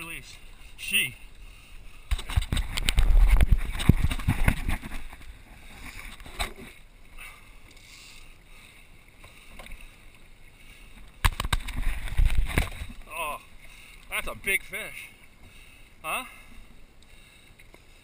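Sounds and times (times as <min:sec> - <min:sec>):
water splashing against boat: 0:00.0 - 0:18.0
wind rumble on microphone: 0:02.1 - 0:05.8.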